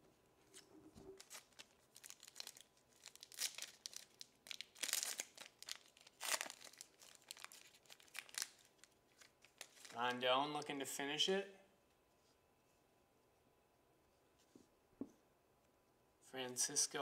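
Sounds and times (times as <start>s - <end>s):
foil wrapper crinkling and tearing: 1.2s - 10.0s.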